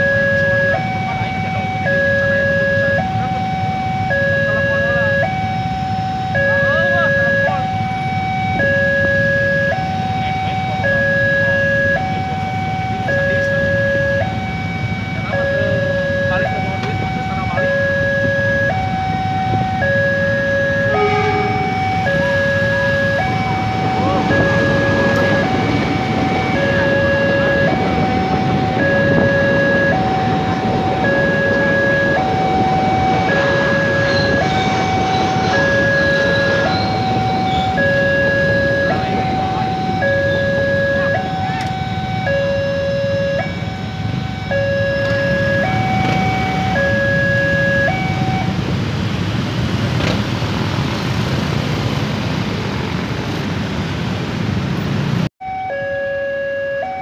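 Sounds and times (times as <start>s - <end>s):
two-tone crossing alarm: 0.0s - 48.8s, 55.4s - 57.0s
idling cars and motorcycles: 0.0s - 57.0s
train coaches rumbling: 19.2s - 42.3s.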